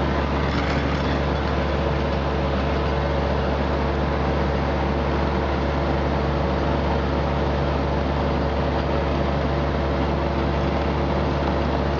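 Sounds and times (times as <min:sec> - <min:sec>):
tractor diesel engine under load: 0:00.0 - 0:11.9.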